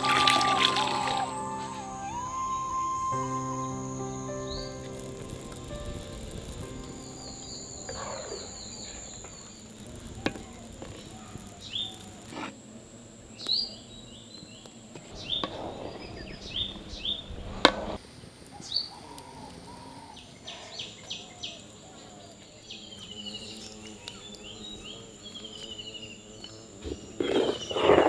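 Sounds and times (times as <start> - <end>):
small birds chirping: 0.0 - 12.2
insect drone: 0.0 - 28.0.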